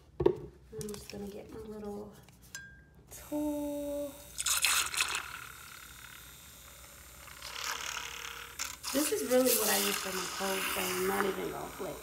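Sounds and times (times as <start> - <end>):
milk frother whisking: 4.2 - 12.0.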